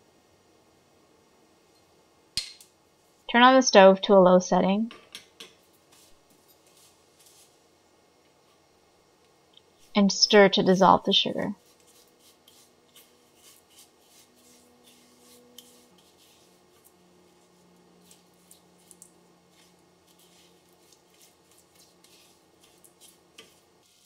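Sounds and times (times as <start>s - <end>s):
spatula scraping sugar in pan: 5.4s - 7.6s, 11.6s - 24.0s.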